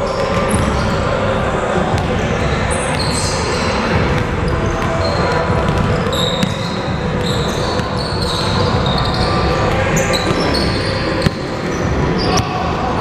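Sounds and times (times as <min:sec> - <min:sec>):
sneakers squeaking: 0:00.0 - 0:12.7
basketball bouncing on wood floor: 0:04.0 - 0:08.2.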